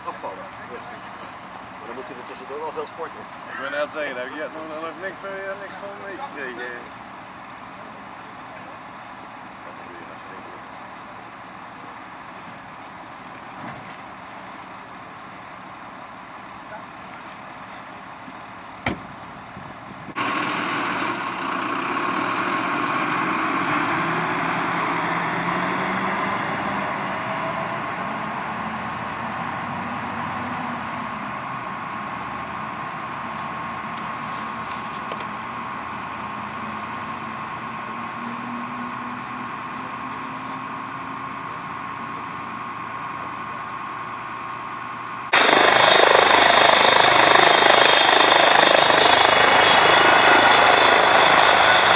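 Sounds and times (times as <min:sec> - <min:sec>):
vehicle engines humming: 0:00.0 - 0:51.9
helicopter running: 0:45.3 - 0:51.9.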